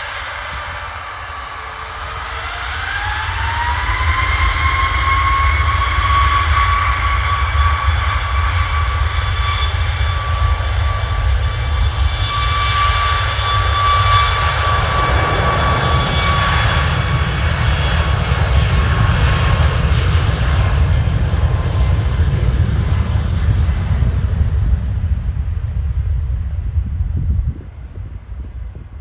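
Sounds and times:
jet engine roar with fan whine: 0.0 - 29.0.

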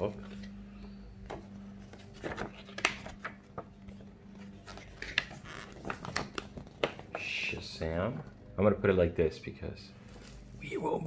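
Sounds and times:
paper crackling and rustling: 1.3 - 7.3.

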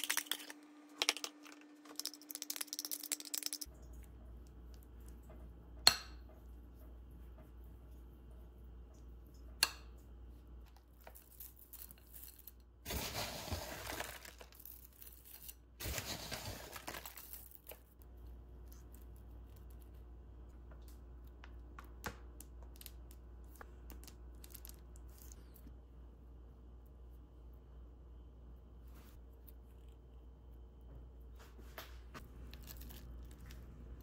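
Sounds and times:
granola poured from crinkly packet: 12.9 - 14.8.

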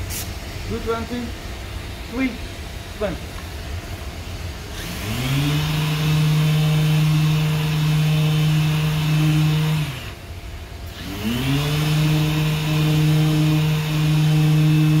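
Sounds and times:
dust extraction hiss: 0.0 - 1.3
orbital sander whirring: 4.6 - 15.0.

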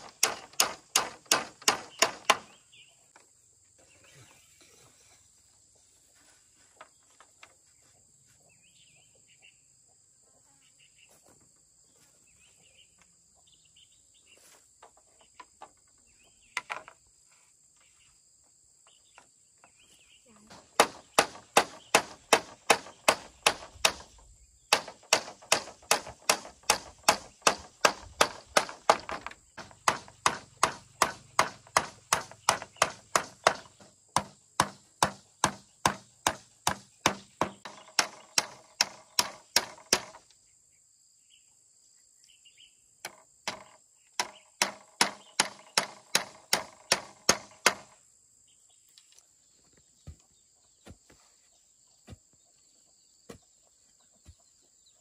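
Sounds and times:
hand tool striking rhythmically: 24.7 - 40.2.

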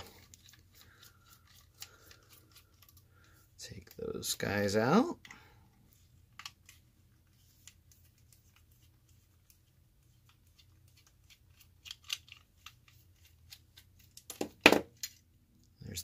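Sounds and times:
screwdriver clicking and scraping: 10.4 - 14.3.

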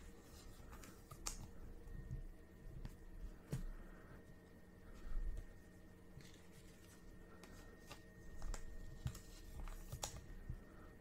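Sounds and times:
cardboard cards rustling and clicking: 0.0 - 1.6, 6.1 - 10.6.

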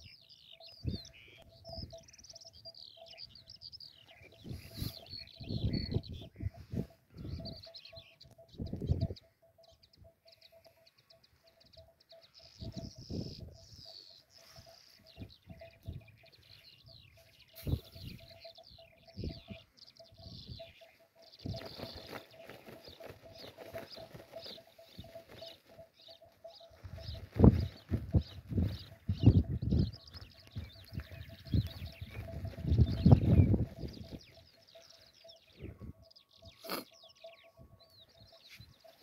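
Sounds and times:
small birds chirping: 0.0 - 39.0
wind buffeting microphone: 4.2 - 9.3, 12.6 - 13.9, 15.0 - 25.4, 26.0 - 34.8, 35.5 - 36.2.

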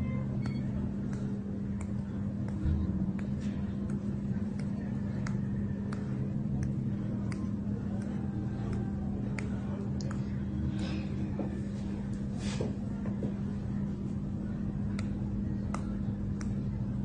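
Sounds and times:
low hum: 0.0 - 17.0
faint skin snaps: 0.4 - 11.0, 14.8 - 16.8.

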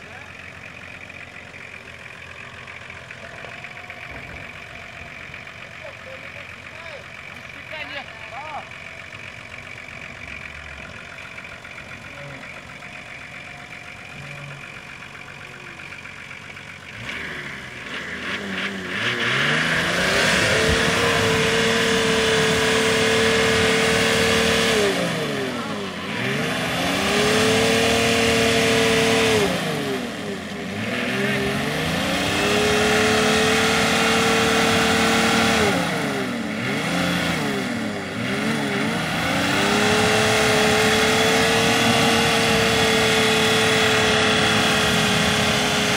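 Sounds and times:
engine revving hard: 16.8 - 45.9.

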